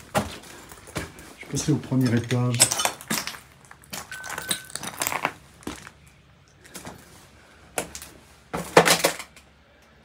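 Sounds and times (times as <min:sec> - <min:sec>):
footsteps crunching on debris: 0:00.0 - 0:07.1.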